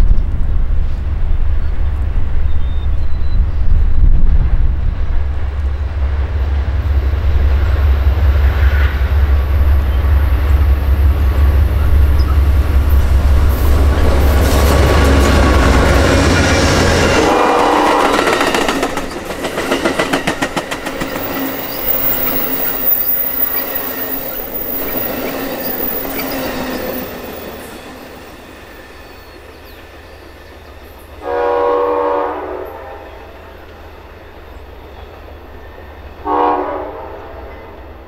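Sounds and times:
train cars rattling past: 0:00.0 - 0:38.0
distant train horn: 0:08.2 - 0:18.8, 0:31.2 - 0:33.7, 0:35.9 - 0:38.0
wheels clacking over rail joints: 0:11.0 - 0:29.8.

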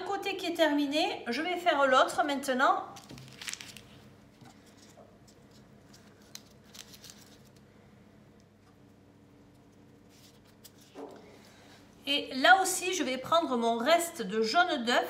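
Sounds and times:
baking paper crinkling: 0:02.9 - 0:07.7
hands twisting pastry: 0:03.0 - 0:07.7.

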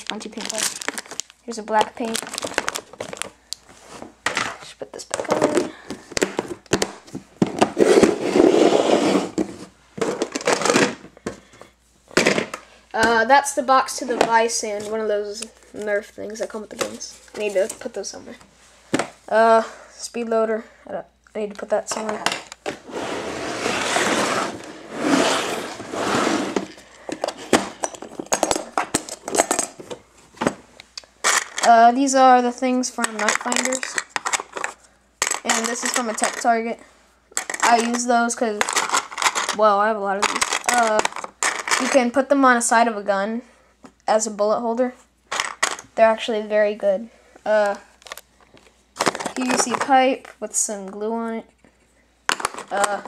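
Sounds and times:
plastic containers clicking and knocking: 0:00.0 - 0:03.4, 0:04.2 - 0:08.1, 0:37.4 - 0:39.6, 0:40.2 - 0:42.0, 0:49.0 - 0:50.0, 0:52.3 - 0:53.0
rustling and scraping: 0:00.0 - 0:13.2, 0:14.0 - 0:19.2, 0:21.9 - 0:31.8.

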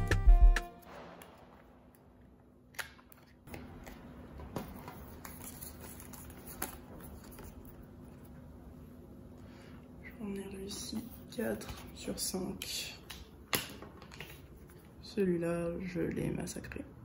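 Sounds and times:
card rustling: 0:02.8 - 0:08.3.

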